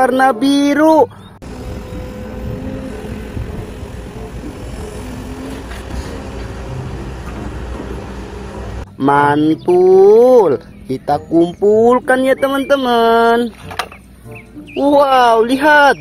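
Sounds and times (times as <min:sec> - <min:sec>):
excavator diesel engine running: 0:01.2 - 0:08.9.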